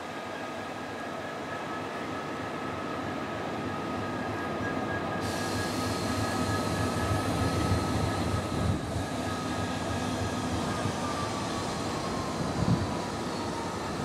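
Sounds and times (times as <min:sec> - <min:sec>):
steady high whine: 0:00.0 - 0:14.0
hiss: 0:05.2 - 0:09.3
diesel locomotive rumble: 0:05.2 - 0:14.0.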